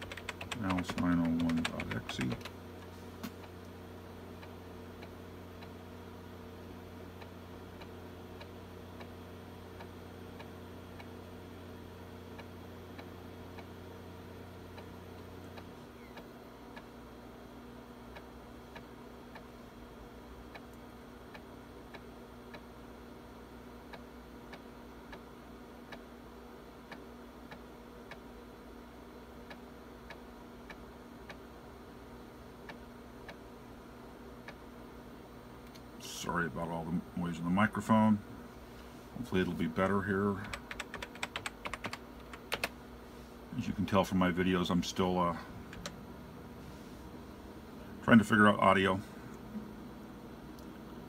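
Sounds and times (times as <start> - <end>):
floppy drive head ticking: 0.0 - 2.6, 39.6 - 42.8
low hum: 29.7 - 51.0.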